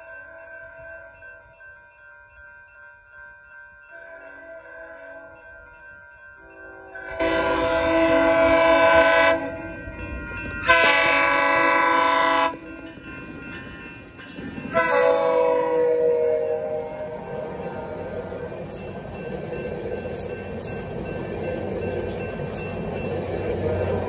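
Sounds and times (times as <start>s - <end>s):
train cars rumbling past: 6.5s - 24.0s
train horn blasts: 6.7s - 9.7s, 10.6s - 12.8s, 14.7s - 18.3s.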